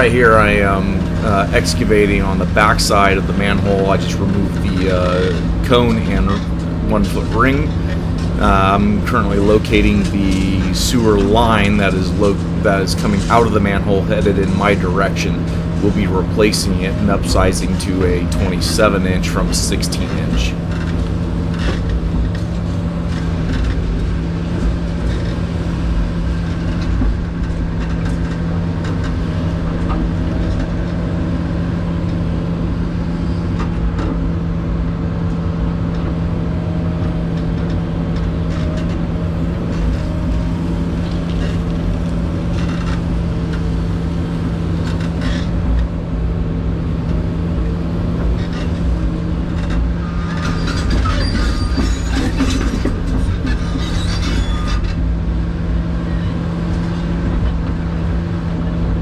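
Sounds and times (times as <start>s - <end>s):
excavator diesel engine humming: 0.0s - 59.0s
steel bucket scraping and clanking: 49.5s - 55.0s.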